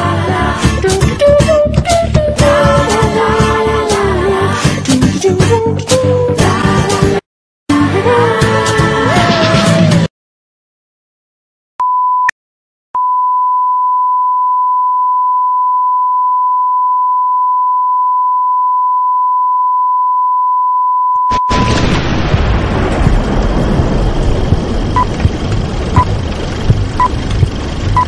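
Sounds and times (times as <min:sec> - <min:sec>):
steady test tone beep: 0:11.8 - 0:12.3, 0:13.0 - 0:21.8.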